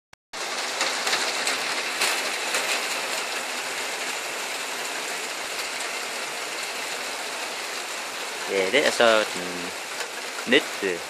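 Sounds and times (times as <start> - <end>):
steady rain falling: 0.4 - 11.0
rain drop taps: 8.8 - 10.8.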